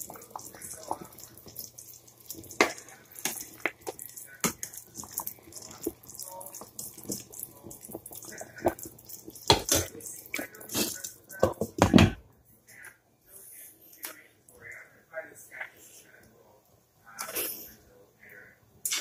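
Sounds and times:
liquid splashing: 0.0 - 11.7.

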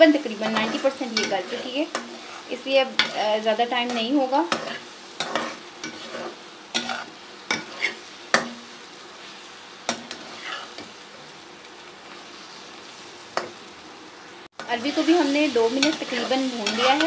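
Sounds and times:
food sizzling in a pan: 0.0 - 17.0
spoon scraping and knocking pan: 0.4 - 3.2, 3.8 - 8.6, 15.7 - 17.0.

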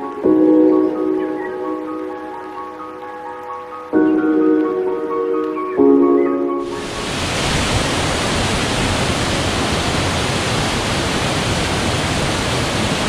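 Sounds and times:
music notes: 0.0 - 7.0
waterfall rushing: 6.6 - 13.0.

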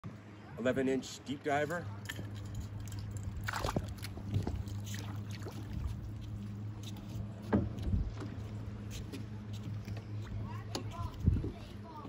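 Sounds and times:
water sloshing against dock: 0.0 - 12.0
lure splashing into water: 2.0 - 5.9.

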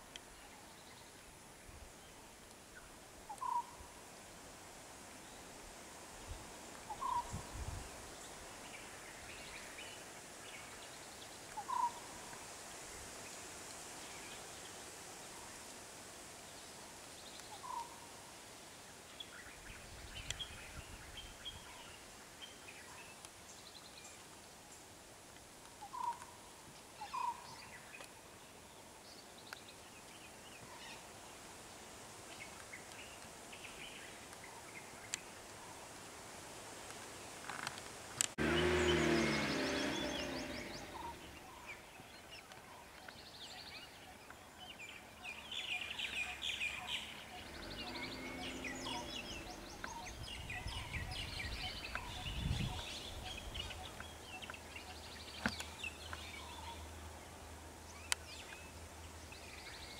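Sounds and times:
faint outdoor background noise: 0.0 - 59.9
higher bird chirps: 38.4 - 41.9, 45.6 - 56.9.

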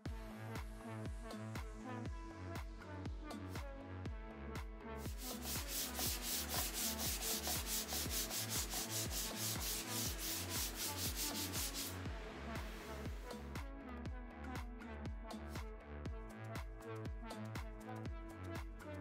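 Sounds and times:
background music with bass beat: 0.0 - 19.0
sandpaper rubbing on wood: 5.1 - 12.0.

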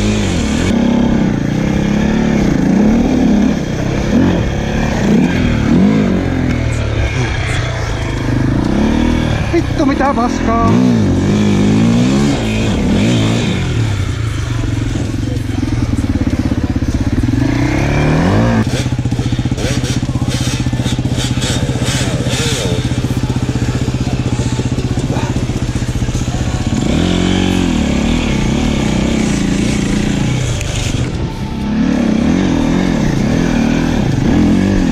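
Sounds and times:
motorcycle engine revving: 0.0 - 34.9.

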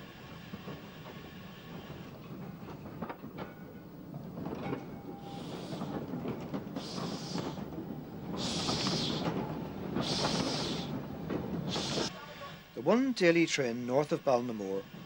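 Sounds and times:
steam locomotive rumbling and clanking: 0.0 - 15.0
hissing exhaust beats: 5.0 - 12.2.

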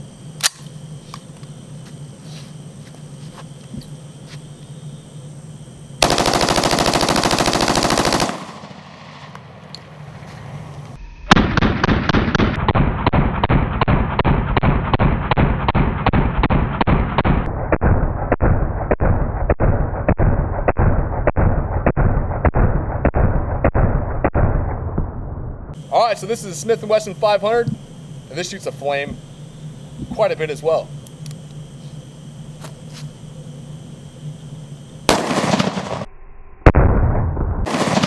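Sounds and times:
automatic rifle fire: 6.0 - 9.4, 35.1 - 36.0, 37.6 - 38.0.

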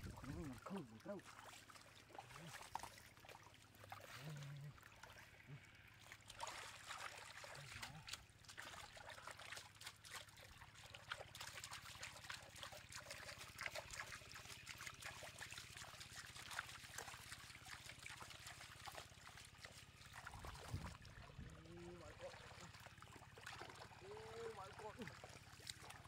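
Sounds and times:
fish thrashing in water: 0.0 - 26.0
shallow water splashing: 0.0 - 26.0.

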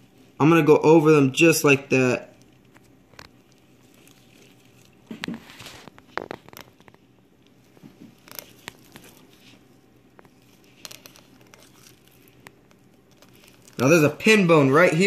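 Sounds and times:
knife scraping over fish bones: 8.2 - 13.9.

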